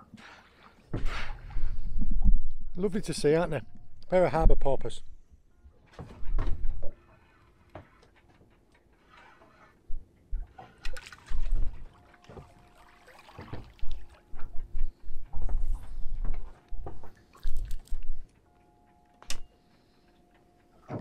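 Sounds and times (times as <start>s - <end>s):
water splashes: 10.6s - 14.5s.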